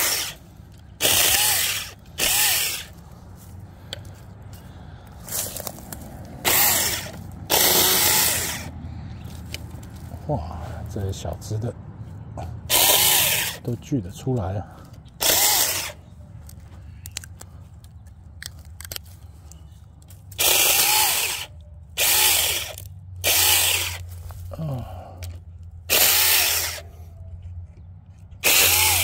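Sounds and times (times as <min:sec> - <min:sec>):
electric chainsaw whining: 0:00.0 - 0:00.4, 0:01.0 - 0:03.0, 0:06.4 - 0:08.7, 0:12.7 - 0:13.7, 0:15.2 - 0:16.0, 0:20.3 - 0:24.1, 0:25.9 - 0:26.9, 0:28.4 - 0:29.0.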